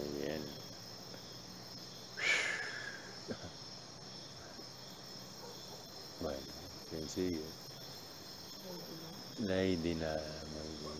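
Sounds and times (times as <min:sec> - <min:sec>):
crickets chirping: 0:00.0 - 0:10.9.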